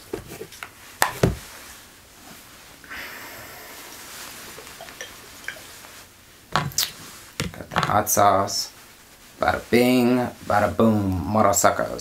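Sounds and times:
rustling of handled objects: 3.7 - 12.0.

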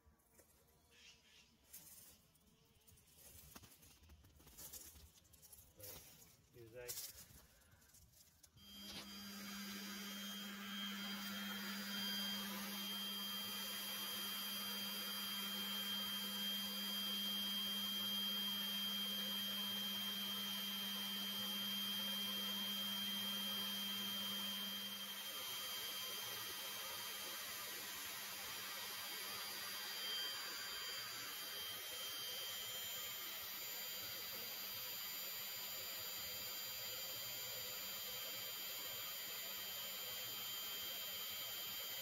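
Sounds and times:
bee vacuum humming: 8.6 - 42.0.

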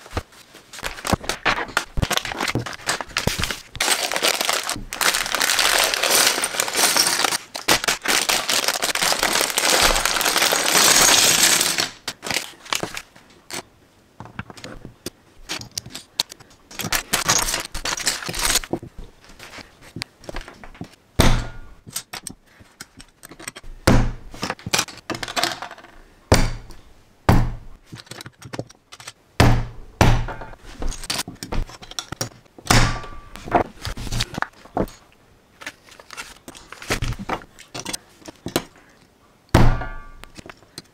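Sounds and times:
plastic bricks clattering on table: 0.8 - 13.0, 24.4 - 26.0
plastic bag crinkling and tearing: 0.8 - 13.1.

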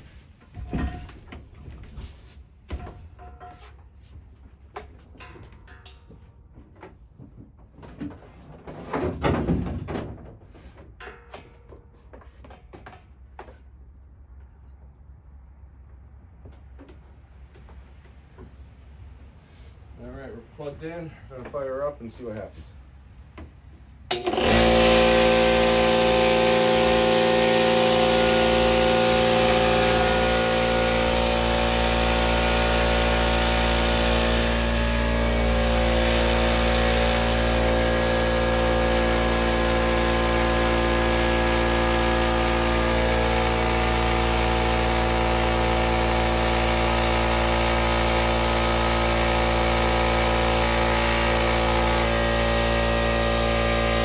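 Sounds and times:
air compressor running: 0.0 - 1.4, 24.1 - 54.0.

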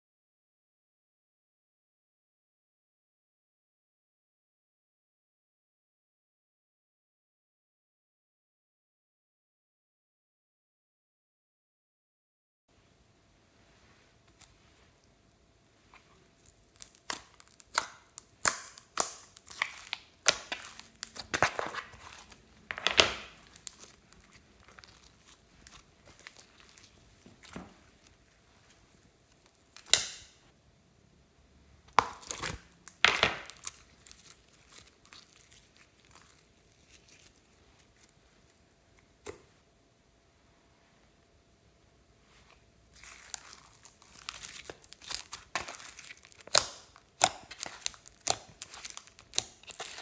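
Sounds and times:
sticky slime squelches: 14.3 - 30.3, 31.9 - 39.5, 42.4 - 50.0
slime crackling and popping: 16.4 - 30.4, 31.9 - 38.1, 42.9 - 50.0.

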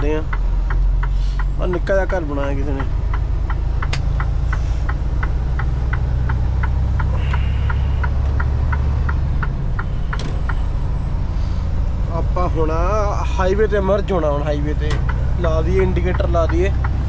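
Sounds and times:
truck engine running low: 0.0 - 17.0
turn signal clicking: 0.2 - 10.8, 14.8 - 17.0.

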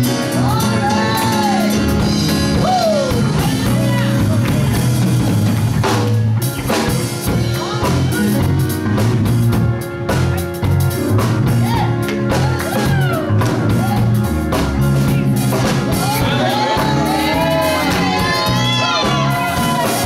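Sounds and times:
live band playing gospel song: 0.0 - 20.0
prominent bass line: 0.0 - 20.0.

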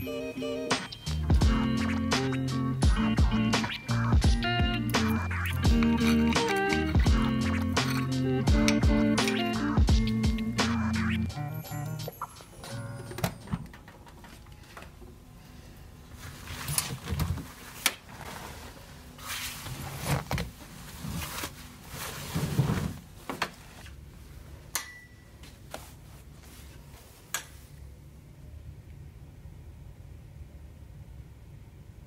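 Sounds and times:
cloth rustling: 16.1 - 24.3, 25.6 - 27.7.

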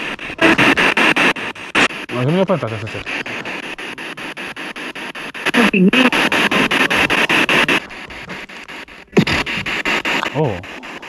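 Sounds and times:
pulsing radio static: 0.0 - 11.0
broadcast voice: 2.1 - 3.7, 5.5 - 8.4, 9.2 - 10.7.

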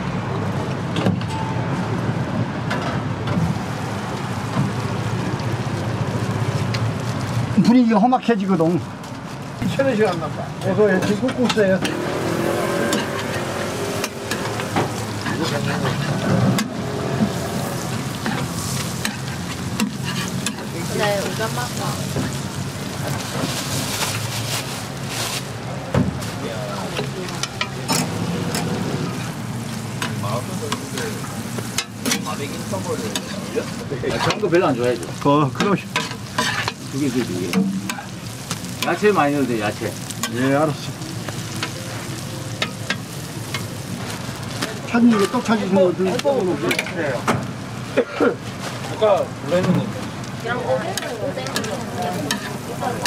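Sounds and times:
eggs sizzling on griddle: 3.4 - 53.0
metal spatula scraping griddle: 11.8 - 21.4, 35.6 - 39.0, 51.0 - 53.0.

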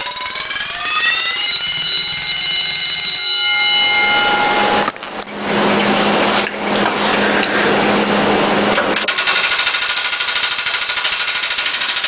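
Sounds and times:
mechanical alarm bell ringing: 0.0 - 4.9
rattling buzz under water: 3.4 - 9.1
churning water: 4.9 - 9.0.

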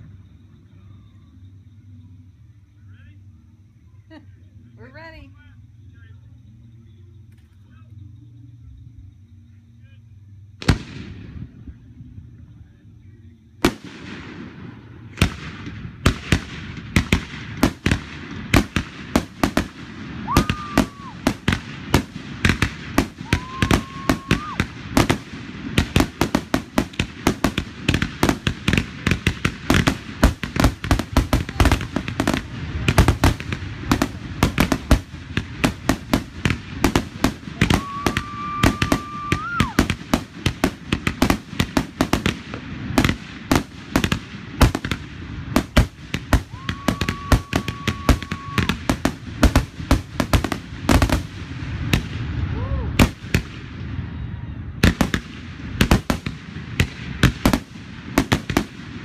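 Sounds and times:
fireworks bangs: 10.6 - 12.0, 13.6 - 59.0
firework whistles: 13.6 - 58.8.

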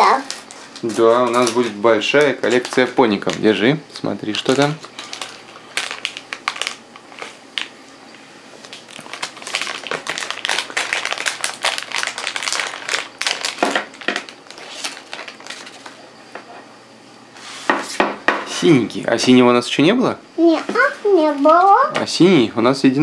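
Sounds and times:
plastic packet crinkling and tearing: 0.0 - 7.7, 8.6 - 16.0.

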